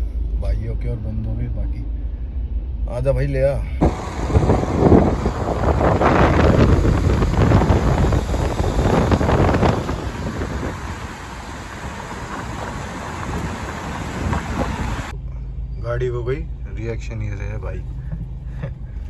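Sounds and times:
moving car rumble: 0.0s - 19.0s
wind buffeting microphone: 3.8s - 15.1s.

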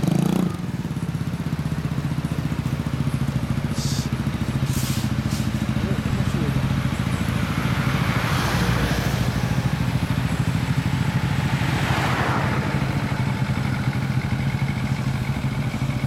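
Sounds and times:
motorcycle engine idling: 0.0s - 16.0s
car driving past: 7.2s - 13.5s.

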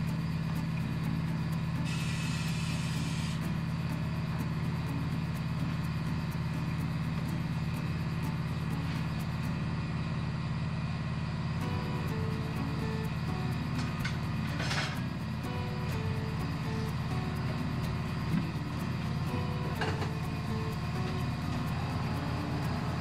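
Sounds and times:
electric motor humming: 11.6s - 23.0s
faint regular ticking: 11.6s - 23.0s.

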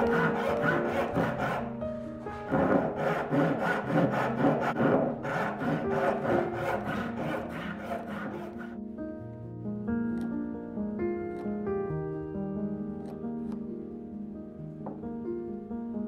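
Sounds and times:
hand saw cutting wood: 0.0s - 1.8s, 2.4s - 8.8s
soft music: 0.0s - 16.0s.

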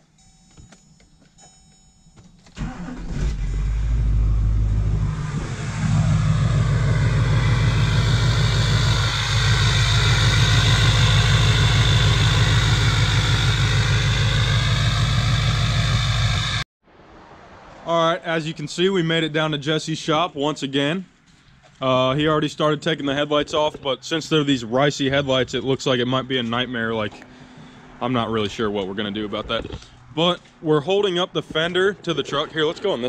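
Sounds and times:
truck engine cranking and idling: 2.3s - 16.7s.

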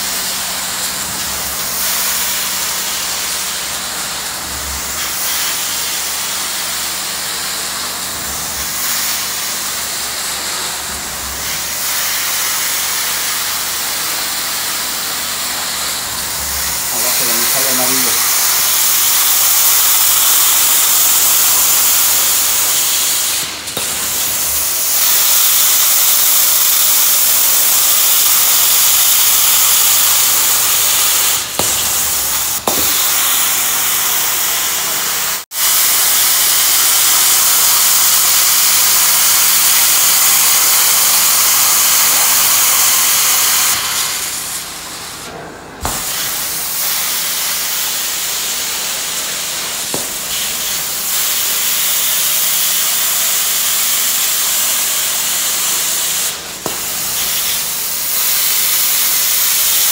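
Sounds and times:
carpet cleaning wand hissing: 11.4s - 44.5s, 45.8s - 59.9s.

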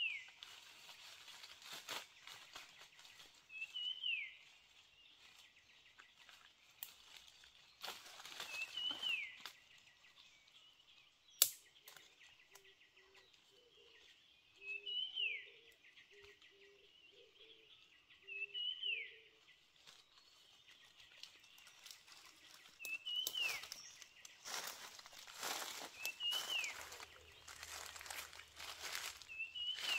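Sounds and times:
dry leaves crunching: 0.0s - 9.8s, 19.6s - 29.9s
bird calling: 21.8s - 29.9s.

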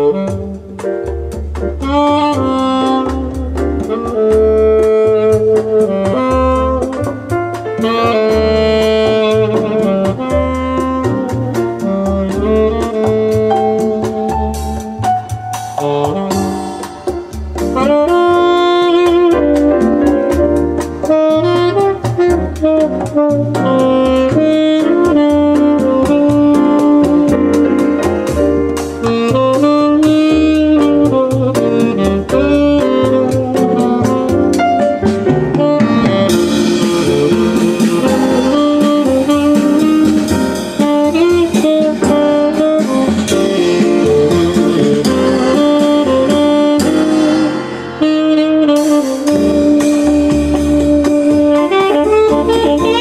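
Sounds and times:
horn melody: 0.0s - 53.0s
jazz over speakers: 0.0s - 53.0s
walking bass: 0.0s - 53.0s
cymbal beat: 14.6s - 19.1s, 33.8s - 53.0s.

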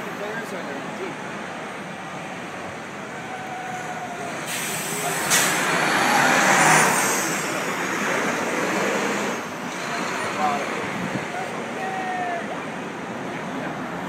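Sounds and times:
vehicle tyre and engine noise: 0.0s - 14.0s
air brake hiss: 4.4s - 5.8s.

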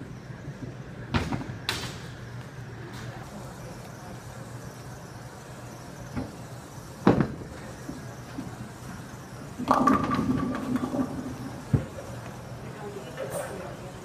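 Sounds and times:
bowling ball rolling on wooden lane: 9.3s - 12.3s.

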